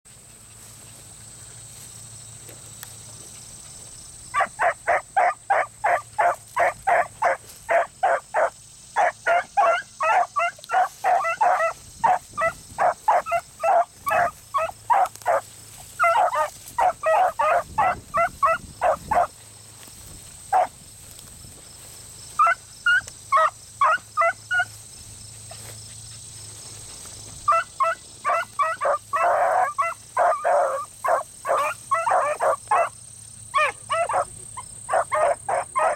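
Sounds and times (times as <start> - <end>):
hounds barking rapidly: 4.3 - 19.4, 20.5 - 20.8, 22.4 - 24.8, 27.4 - 35.9.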